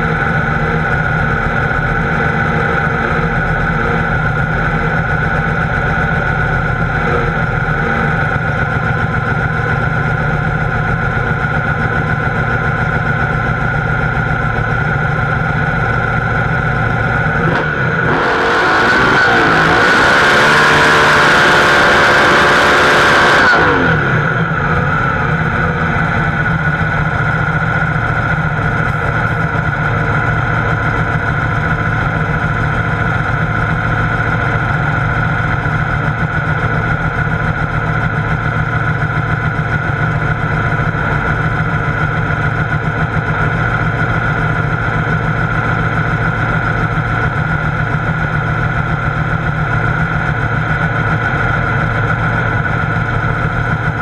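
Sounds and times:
drag car engine idling and revving: 0.0s - 54.0s.

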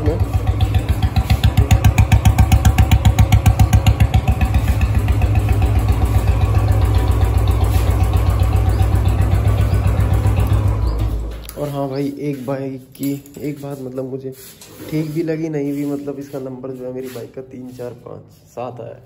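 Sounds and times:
motorcycle engine idling: 0.0s - 11.3s.

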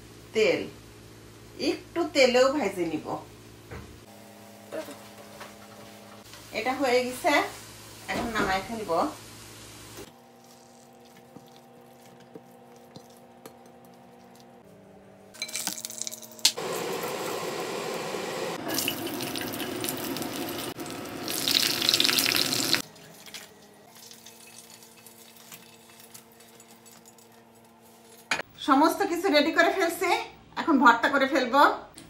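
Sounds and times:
chilies sizzling in hot oil: 6.2s - 11.8s, 16.0s - 26.2s.

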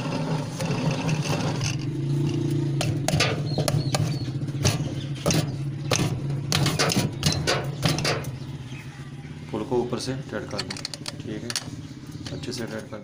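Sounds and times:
metal clicks and scrapes: 0.0s - 8.4s, 10.4s - 12.7s
sharp knocks: 2.7s - 8.4s.

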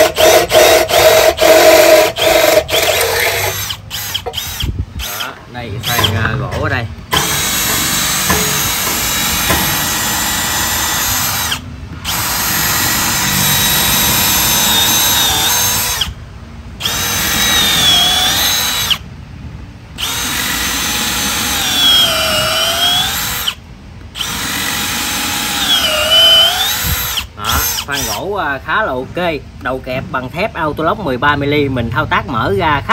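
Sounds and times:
cordless drill drilling into wood: 0.0s - 6.2s, 7.1s - 16.2s, 16.8s - 19.0s, 20.0s - 23.6s, 24.2s - 28.2s.

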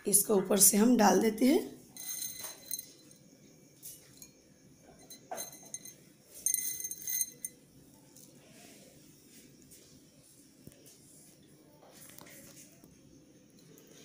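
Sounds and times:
china clinking: 1.9s - 3.3s, 5.0s - 7.6s.

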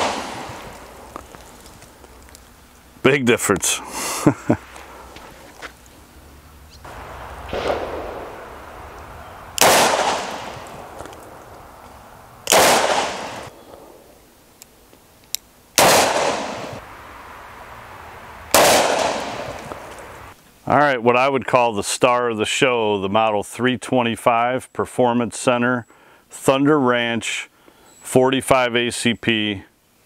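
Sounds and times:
revolver shots with ringing echo: 0.0s - 0.8s, 6.9s - 11.8s, 12.4s - 14.1s, 15.8s - 16.8s, 18.5s - 19.6s
soft bang: 7.4s - 8.4s.

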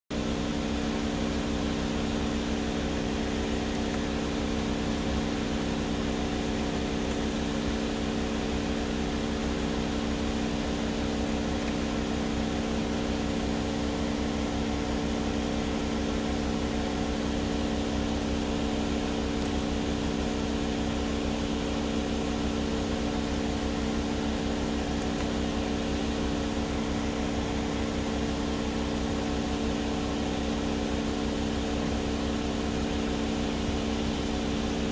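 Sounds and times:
car cabin hum: 2.7s - 29.9s.

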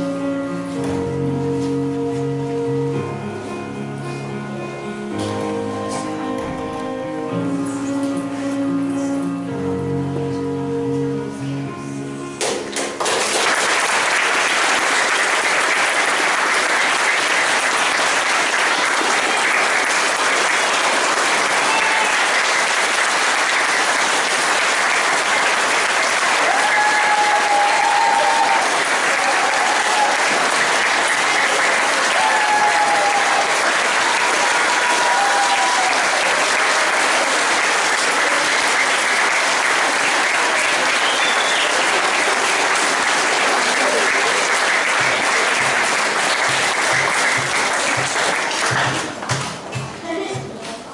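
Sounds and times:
children applauding: 12.4s - 49.5s.

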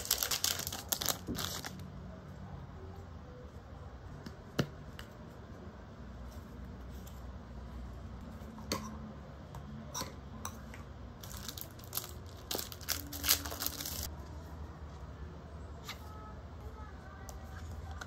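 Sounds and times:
plastic packaging crinkling: 0.0s - 1.8s, 11.2s - 14.1s.

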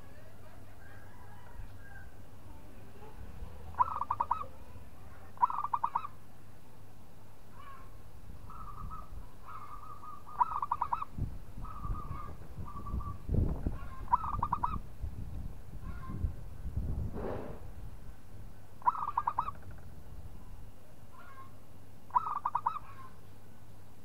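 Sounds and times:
dove cooing: 3.7s - 4.6s, 5.4s - 6.2s, 8.5s - 13.2s, 13.8s - 14.8s, 18.8s - 19.8s, 22.1s - 23.1s.

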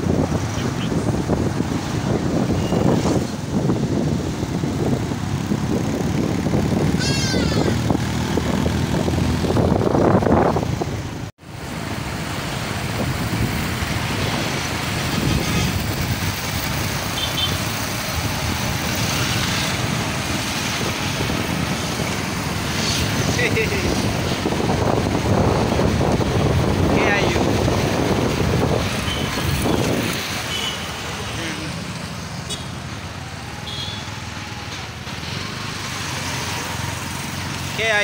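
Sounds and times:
wind on microphone: 0.0s - 11.3s, 12.8s - 17.1s, 17.9s - 30.4s
cars passing: 0.0s - 38.0s
motorcycle engines: 0.0s - 38.0s.

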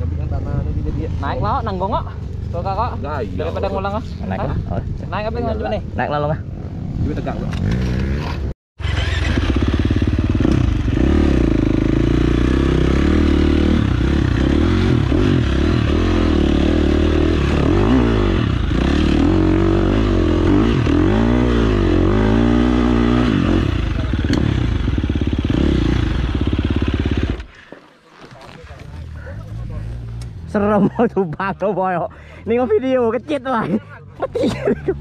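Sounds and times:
motorcycle engine revving: 6.6s - 27.7s.

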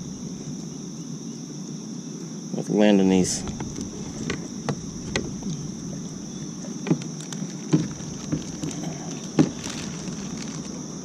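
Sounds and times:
insects droning: 0.0s - 11.0s
gear knocking against kayak: 3.4s - 10.6s.

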